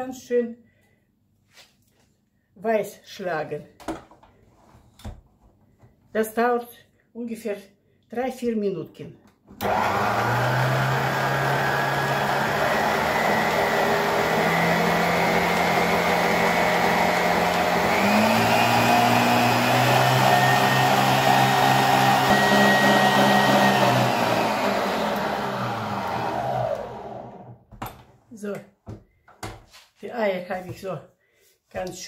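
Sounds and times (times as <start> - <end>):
stand mixer whisking: 9.6 - 27.4.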